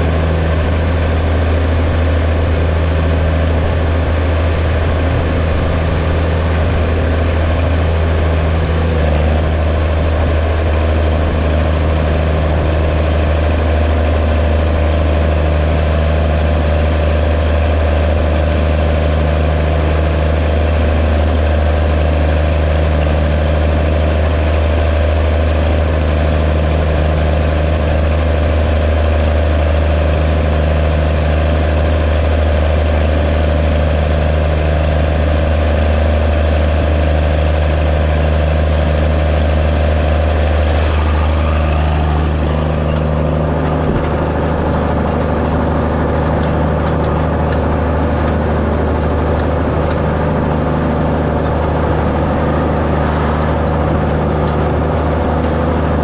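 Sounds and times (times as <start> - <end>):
tractor diesel engine droning: 0.0 - 56.0.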